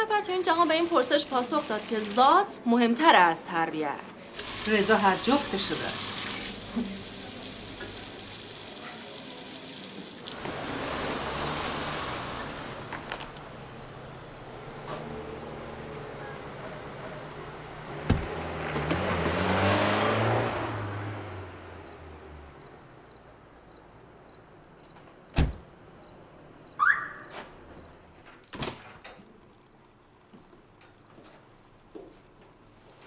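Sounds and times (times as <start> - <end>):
doors shutting: 14.8 - 15.3, 17.9 - 19.4, 25.3 - 25.7, 26.8 - 29.4
door squeak: 25.3 - 25.6.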